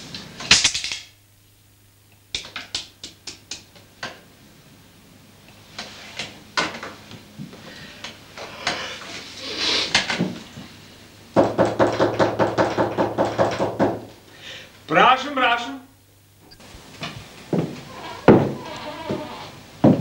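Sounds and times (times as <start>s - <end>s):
rapid knocking on a door: 11.4s - 14.1s, 17.6s - 20.0s.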